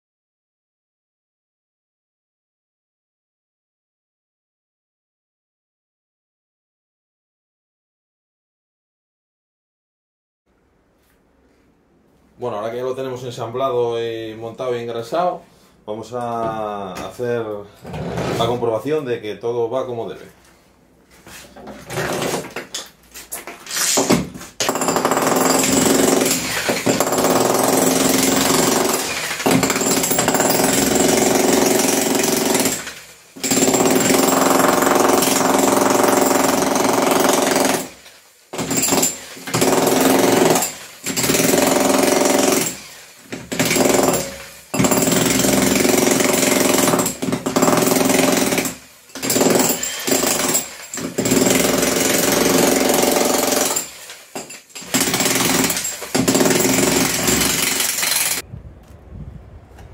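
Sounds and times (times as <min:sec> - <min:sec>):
demolition hammer chiselling brick: 0:21.6 - 0:58.4.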